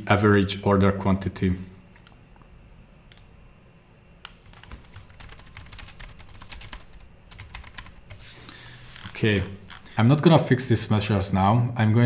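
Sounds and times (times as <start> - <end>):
typing on computer keyboard: 4.5 - 8.2.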